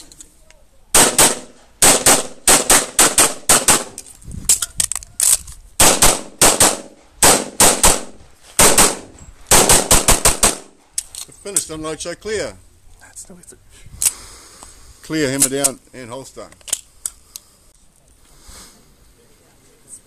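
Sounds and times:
rapid handgun shots: 0:01.0 - 0:04.0, 0:05.8 - 0:10.8.

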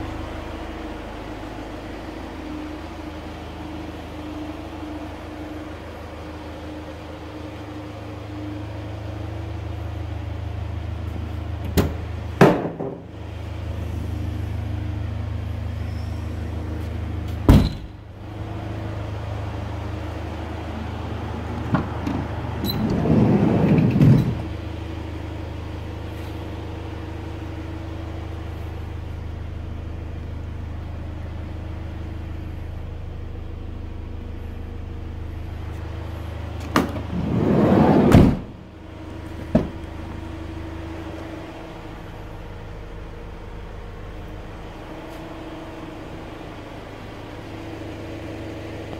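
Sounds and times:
steady low hum: 0:00.0 - 0:48.9
sliding van door rolling and shutting: 0:21.2 - 0:24.6, 0:36.5 - 0:40.4.

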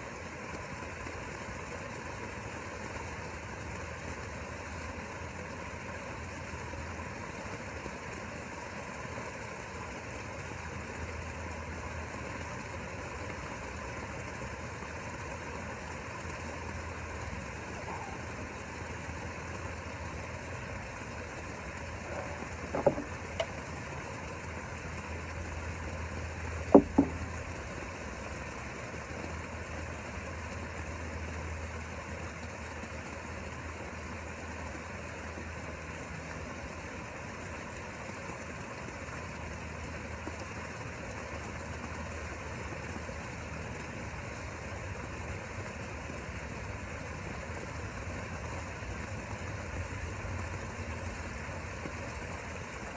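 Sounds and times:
motor humming: 0:10.7 - 0:28.6
sharp knocks: 0:22.7 - 0:23.5, 0:26.7 - 0:27.2.

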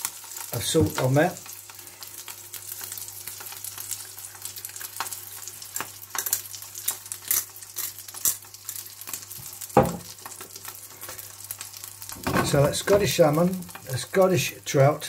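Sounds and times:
fish sizzling in a frying pan: 0:00.0 - 0:15.0
knock: 0:09.8 - 0:10.0.

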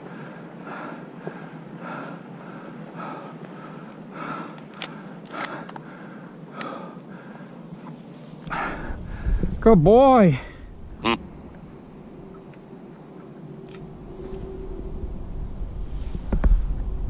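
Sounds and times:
sharp clicks: 0:04.5 - 0:05.9.

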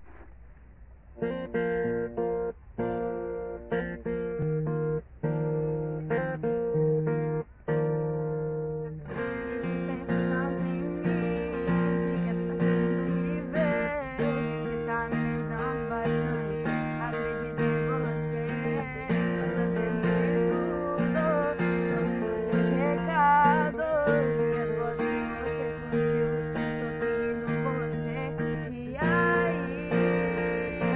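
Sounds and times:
strummed acoustic guitar: 0:00.0 - 0:30.9
woman singing: 0:09.2 - 0:30.9.

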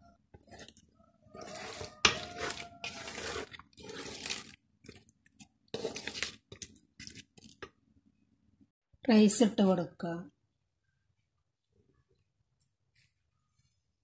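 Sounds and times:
spoon stirring thick sauce in pot: 0:00.0 - 0:07.8.

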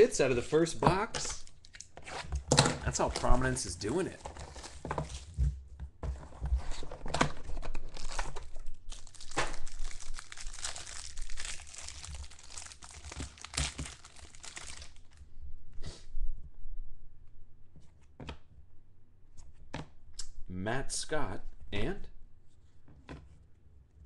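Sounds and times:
card pack wrapper crinkling: 0:02.9 - 0:05.4, 0:07.4 - 0:15.2.

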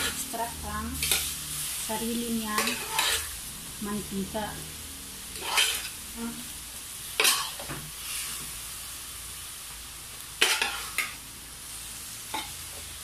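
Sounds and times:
metal spoon scraping a pan: 0:00.0 - 0:03.4, 0:05.3 - 0:06.0, 0:07.2 - 0:08.4, 0:10.4 - 0:11.2
meat sizzling in a frying pan: 0:00.0 - 0:13.0.

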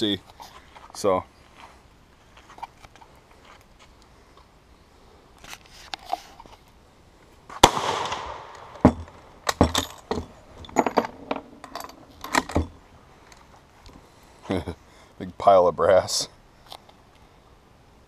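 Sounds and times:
rifle shot: 0:07.6 - 0:09.6.

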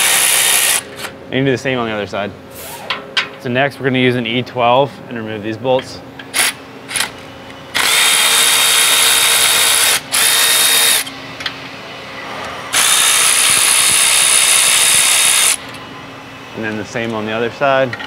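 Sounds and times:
power ratchet whining: 0:07.7 - 0:11.1, 0:12.7 - 0:15.8.

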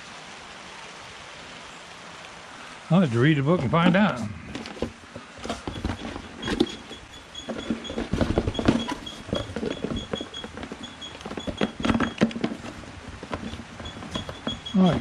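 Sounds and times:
plastic knocking against cardboard: 0:03.5 - 0:15.0.

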